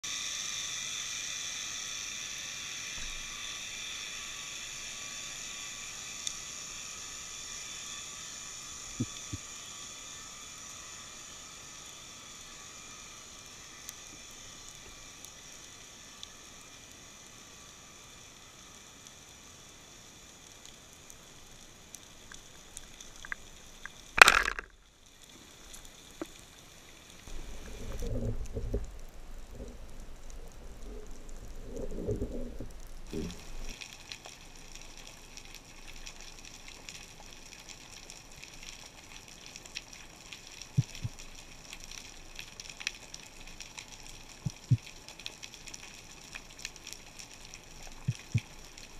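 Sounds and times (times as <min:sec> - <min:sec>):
faint underwater crackle: 0:00.0 - 0:48.9
speargun firing snap: 0:24.2 - 0:24.7.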